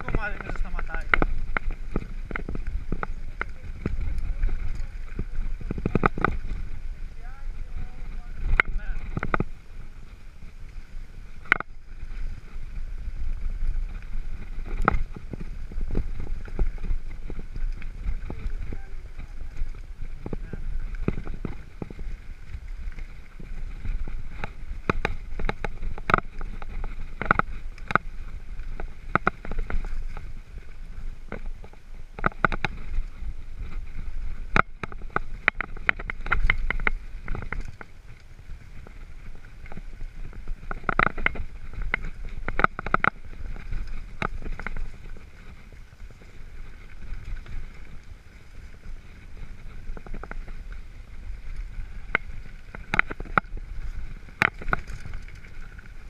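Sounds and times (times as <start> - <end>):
bike rattling over bumps: 0.0 - 56.0
tyres rumbling on gravel: 0.0 - 56.0.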